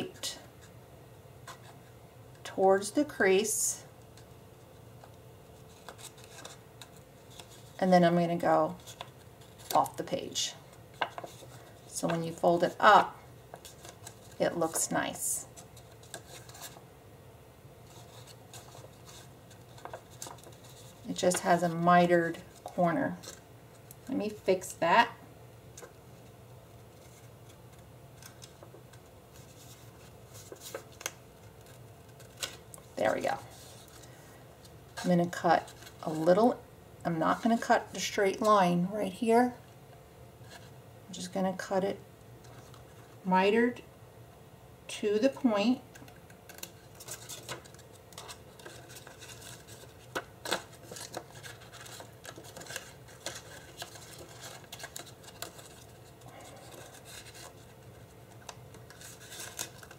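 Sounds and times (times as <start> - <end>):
paper rustling: 5.0 - 7.8, 8.7 - 10.0, 10.9 - 12.8, 15.5 - 16.8, 17.8 - 24.5, 25.8 - 36.3, 45.9 - 59.9.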